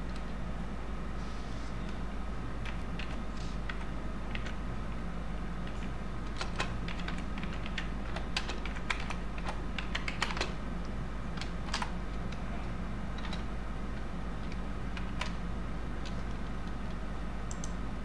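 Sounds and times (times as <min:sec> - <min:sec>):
steady low hum: 0:00.0 - 0:18.0
keyboard typing clicks: 0:05.6 - 0:10.6, 0:11.4 - 0:12.4, 0:13.2 - 0:15.4, 0:16.0 - 0:17.8.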